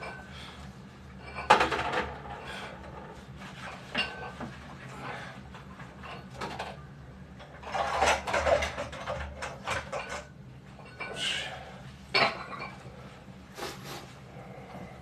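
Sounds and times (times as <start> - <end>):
dishes and cutlery clinking: 3.7 - 4.5, 12.1 - 12.8
dish scraping: 7.5 - 10.3.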